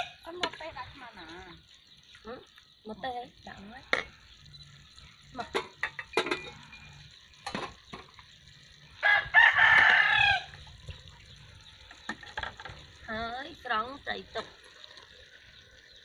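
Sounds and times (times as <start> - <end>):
rooster crowing: 9.0 - 10.6.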